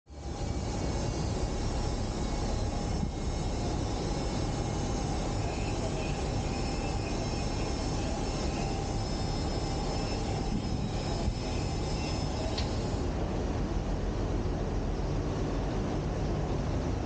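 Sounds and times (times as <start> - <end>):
faint steady whines: 0.1 - 17.0
industrial machinery rumble: 0.1 - 17.0.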